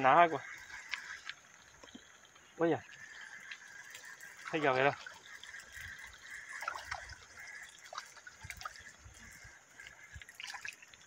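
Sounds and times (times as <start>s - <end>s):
fish splashing at water surface: 3.0s - 11.0s.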